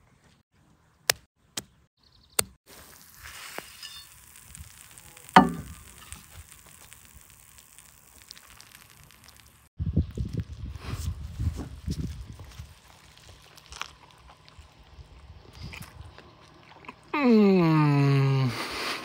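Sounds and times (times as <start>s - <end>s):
food sizzling on a griddle: 2.7s - 9.7s.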